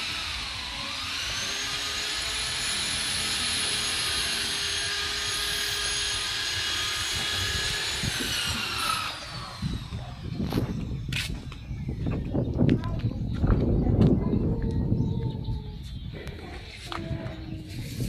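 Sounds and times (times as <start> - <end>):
power tool motor whining: 0.0 - 12.2.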